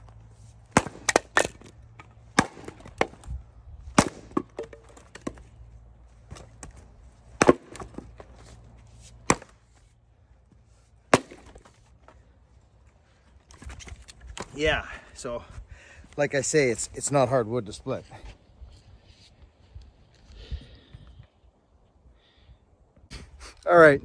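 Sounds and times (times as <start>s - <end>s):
axe splitting wood: 0.7s - 5.5s, 6.2s - 8.5s, 9.1s - 9.7s, 11.1s - 12.2s.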